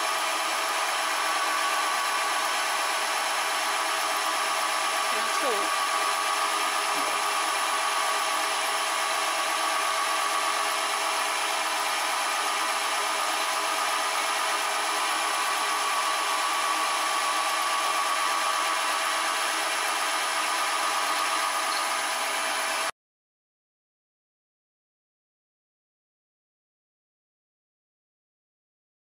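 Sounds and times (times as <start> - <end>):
milling machine cutting metal whine: 0.0 - 22.9.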